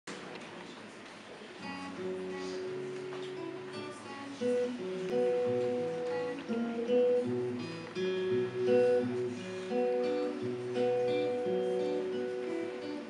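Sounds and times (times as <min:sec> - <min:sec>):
acoustic guitar picked chords: 0:01.6 - 0:13.0.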